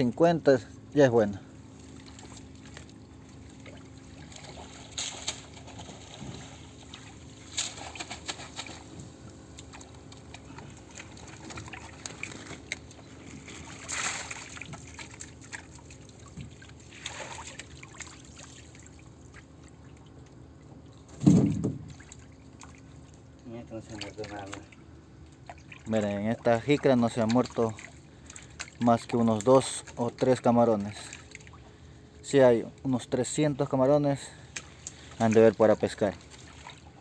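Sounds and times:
water splashing and trickling: 1.2 - 37.0
heavy low thump: 21.2 - 21.9.

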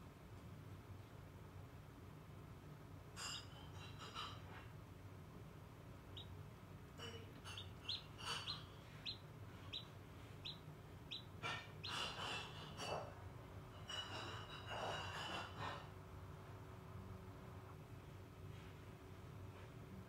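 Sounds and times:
incubator humming: 4.8 - 13.7
chick peeping: 6.0 - 13.1.

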